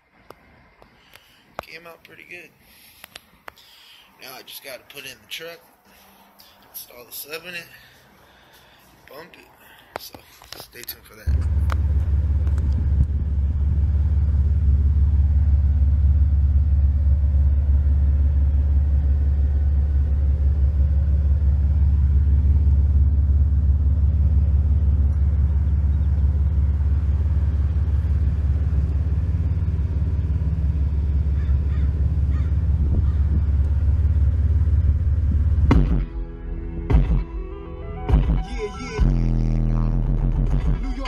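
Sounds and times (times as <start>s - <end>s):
subwoofer playing deep bass note: 11.3s - 41.0s.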